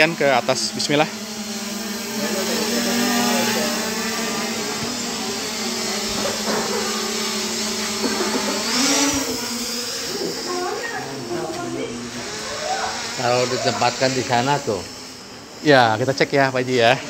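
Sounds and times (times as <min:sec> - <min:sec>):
drone propellers humming: 0:00.0 - 0:17.0.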